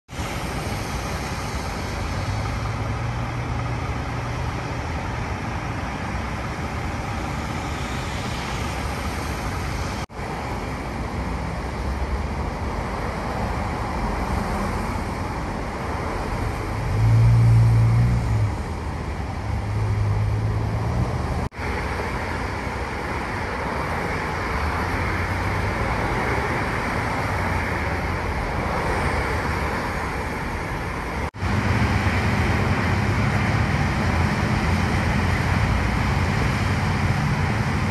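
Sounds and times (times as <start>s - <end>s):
highway traffic rushing: 0.0s - 37.9s
deep engine hum passing: 16.4s - 21.5s.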